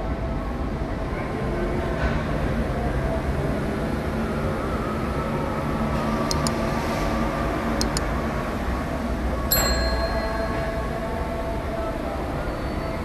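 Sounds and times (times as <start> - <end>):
mouse clicks: 6.3 - 6.6, 7.8 - 8.1
bell ding: 9.5 - 11.2.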